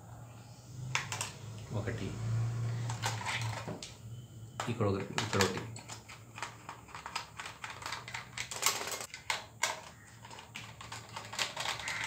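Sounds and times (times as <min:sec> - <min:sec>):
plastic clicks and rattles: 0:04.6 - 0:12.0.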